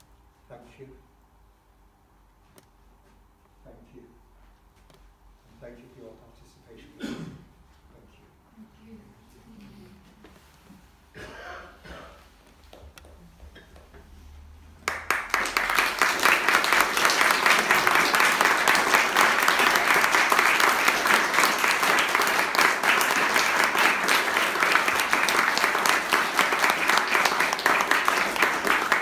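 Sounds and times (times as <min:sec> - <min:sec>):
audience applause: 0:14.8 - 0:29.0.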